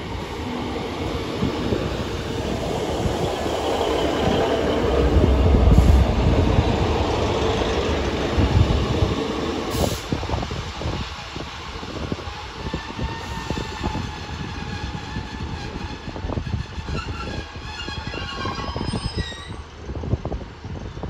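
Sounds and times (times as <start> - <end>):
diesel train engines rumbling: 0.0 - 21.0
high wheel squeals: 16.7 - 19.7.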